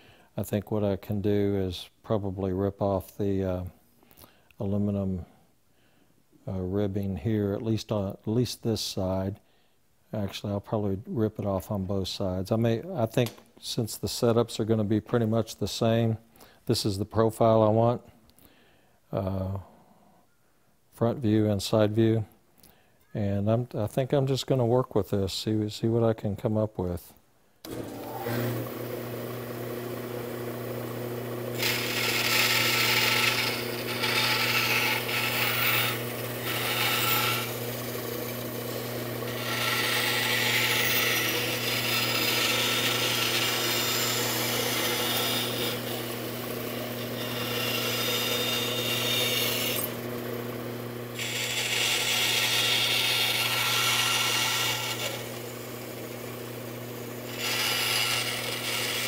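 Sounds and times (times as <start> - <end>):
bandsaw motor hum: 27.6 - 59.0
bandsaw blade cutting wood: 27.7 - 59.0.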